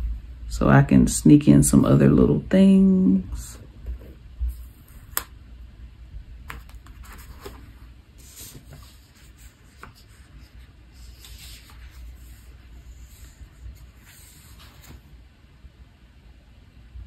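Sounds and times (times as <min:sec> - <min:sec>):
soft paper rustles: 0:06.5 - 0:15.2.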